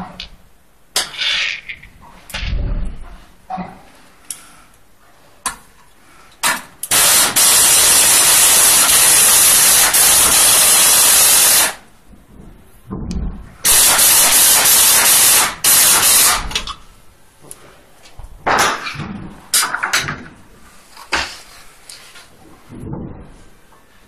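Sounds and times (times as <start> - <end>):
pneumatic screwdriver hissing: 6.9 - 11.8, 13.7 - 16.6.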